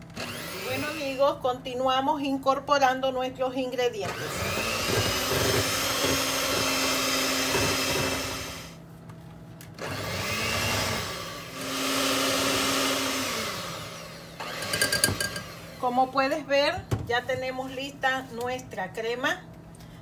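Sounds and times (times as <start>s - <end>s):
electric hand mixer running: 0.0s - 1.2s, 4.0s - 8.8s, 9.8s - 16.0s.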